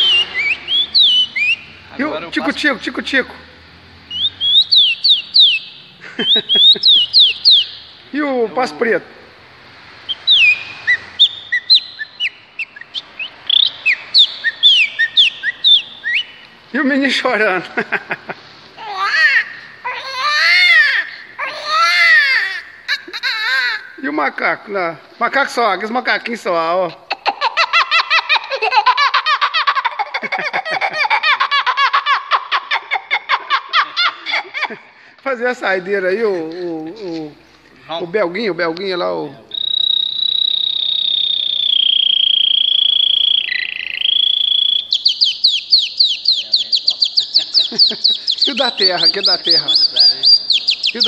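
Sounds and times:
man whistling birdsong: 0:00.0 - 0:01.8, 0:04.1 - 0:07.9, 0:10.1 - 0:16.4, 0:39.5 - 0:51.0
man imitating monkey chatter: 0:06.2 - 0:07.7, 0:39.5 - 0:51.0.

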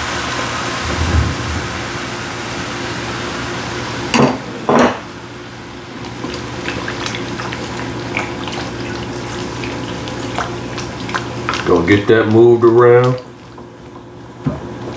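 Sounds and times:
pan sizzling with loud hiss: 0:00.0 - 0:06.6.

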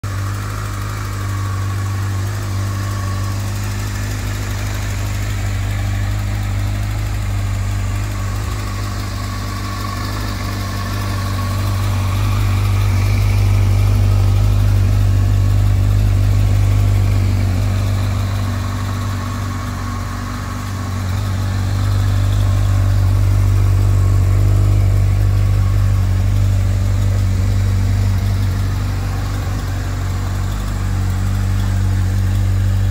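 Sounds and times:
motorcycle engine idling: 0:00.0 - 0:32.9.

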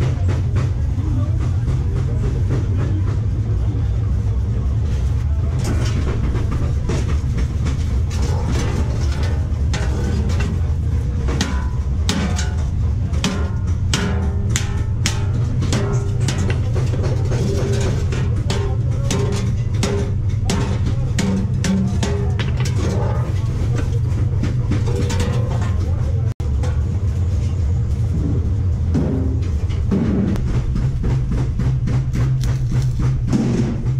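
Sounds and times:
steady low hum: 0:00.0 - 0:33.9
hammer striking steel sheet: 0:05.6 - 0:26.2.

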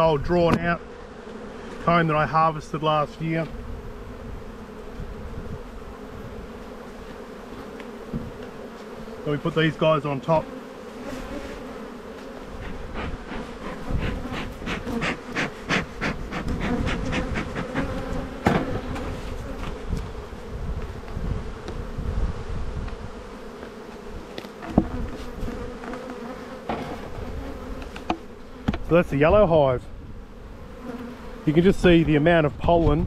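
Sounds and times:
honeybees buzzing: 0:00.0 - 0:33.0
hive boxes clicking and knocking: 0:12.2 - 0:19.8, 0:23.6 - 0:28.9.

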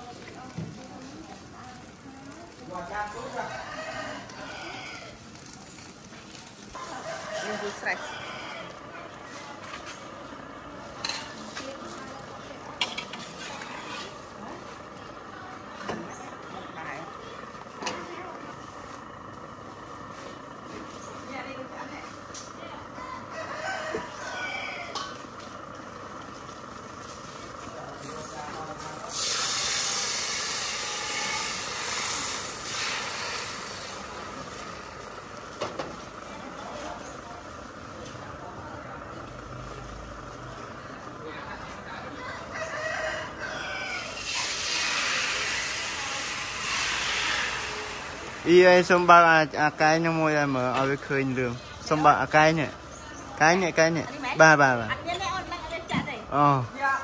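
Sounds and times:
batter sizzling in a wok: 0:00.0 - 0:41.6, 0:42.2 - 0:55.5
metal spatula scraping a wok: 0:12.8 - 0:14.3, 0:29.1 - 0:34.8, 0:44.2 - 0:47.7.

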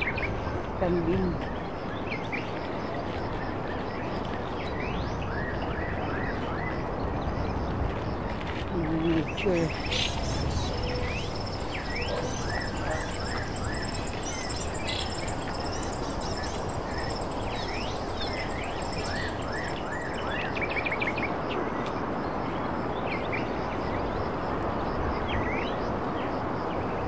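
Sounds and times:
outdoor background hiss: 0:06.8 - 0:27.0
birds chirping: 0:08.8 - 0:20.9
high pulsing bird trill: 0:09.3 - 0:20.7.

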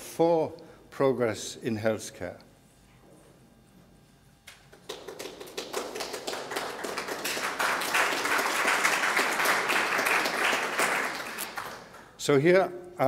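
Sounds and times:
audience applause: 0:04.8 - 0:12.1.

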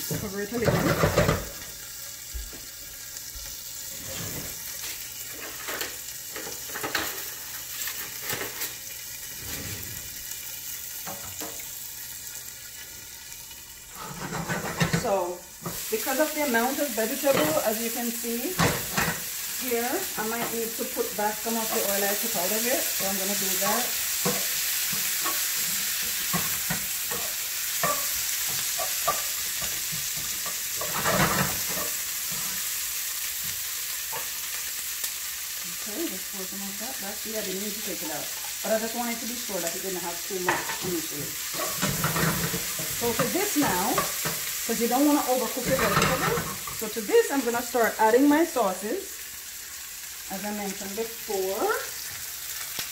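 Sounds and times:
vegetables sizzling in oil: 0:00.0 - 0:52.9
utensil scraping and tapping pot: 0:26.3 - 0:32.0.

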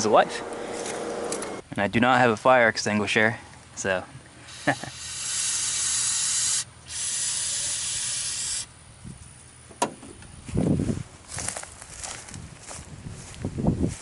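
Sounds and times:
aerosol spray hissing: 0:04.5 - 0:08.7.

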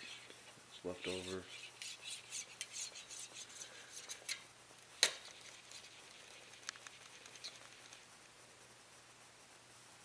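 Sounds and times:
faint clicks: 0:06.5 - 0:08.0.

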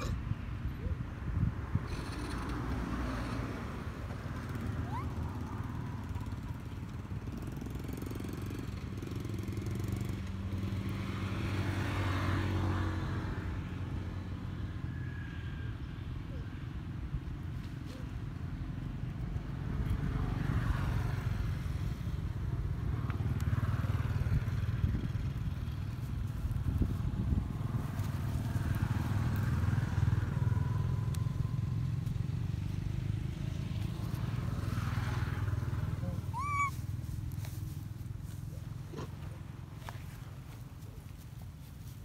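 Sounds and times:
wind buffeting microphone: 0:24.2 - 0:28.0
high rising squeak: 0:36.3 - 0:36.8.

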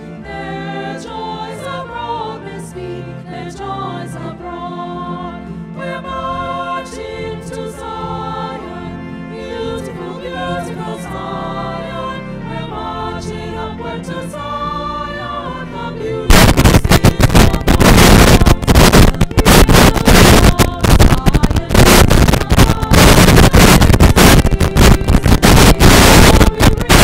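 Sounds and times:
choir singing sacred music: 0:00.0 - 0:27.0
loud blast of noise: 0:16.3 - 0:27.0.

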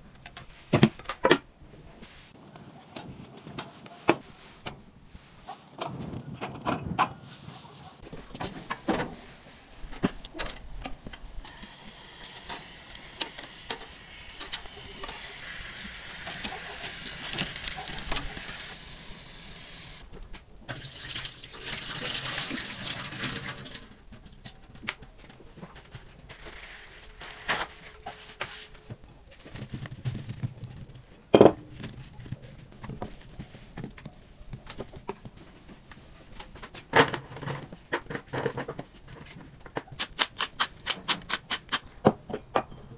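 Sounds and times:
water splashing into a steel sink: 0:20.7 - 0:24.0.

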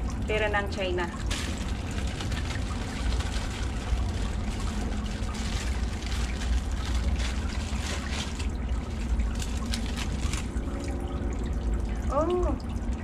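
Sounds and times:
steady low rumble: 0:00.0 - 0:13.0
plastic packaging crinkling: 0:01.2 - 0:10.8.

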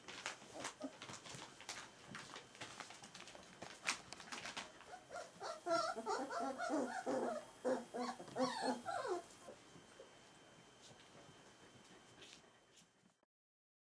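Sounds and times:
puppies whimpering and whining: 0:04.8 - 0:10.1.

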